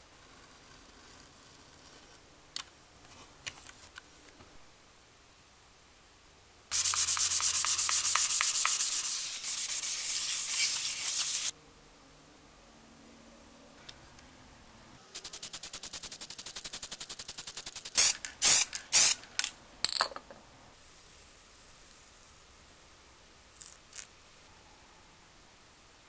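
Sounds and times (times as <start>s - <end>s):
sandpaper scraping metal: 6.7s - 11.5s.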